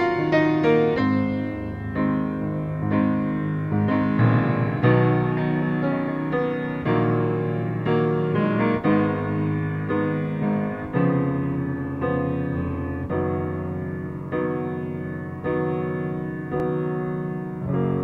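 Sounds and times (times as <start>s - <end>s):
piano music: 0.0s - 18.0s.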